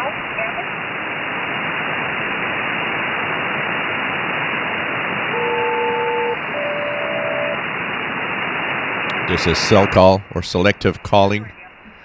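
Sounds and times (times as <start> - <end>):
radio static hiss: 0.0 - 12.0
paired steady radio tones: 5.1 - 12.0.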